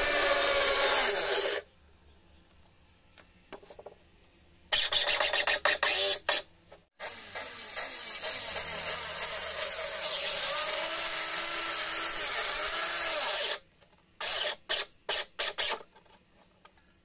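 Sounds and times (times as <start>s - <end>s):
circular saw cutting plywood: 0.0s - 1.6s, 7.0s - 13.6s.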